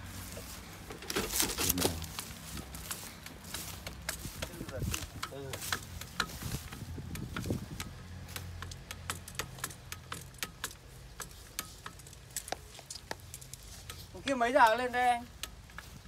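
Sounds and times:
grease gun clicking: 0:05.2 - 0:14.0.

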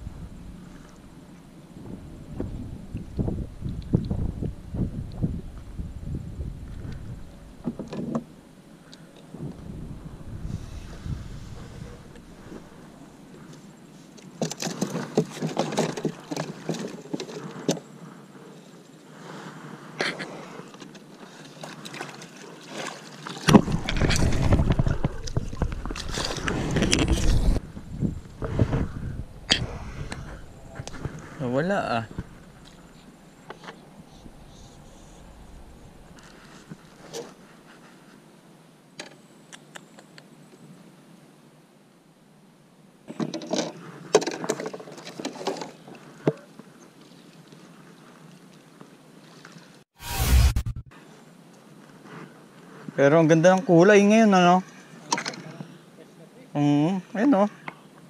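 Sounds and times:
wind rumble on microphone: 0:00.0 - 0:07.9, 0:09.3 - 0:13.4, 0:23.5 - 0:37.4
fishing gear clicks and rustles: 0:14.2 - 0:17.8.

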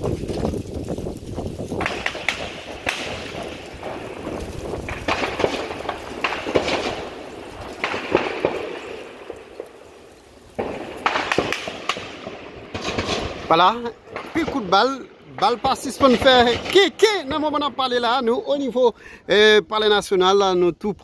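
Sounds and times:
gunshots echoing: 0:01.8 - 0:10.0, 0:10.6 - 0:18.3.

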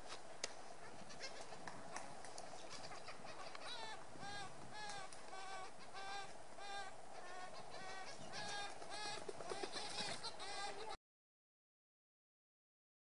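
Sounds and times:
woodpecker calling: 0:02.5 - 0:11.0.

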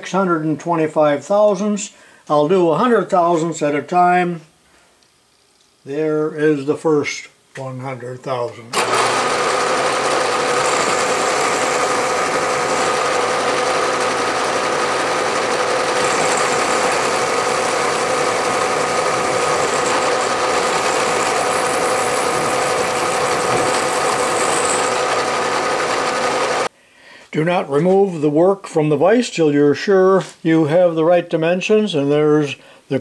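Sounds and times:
milling machine cutting metal: 0:08.8 - 0:26.7.

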